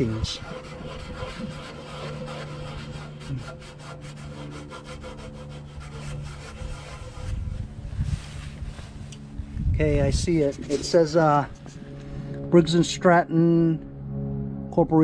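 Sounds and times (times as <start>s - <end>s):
rag wiping metal: 0.0s - 9.1s.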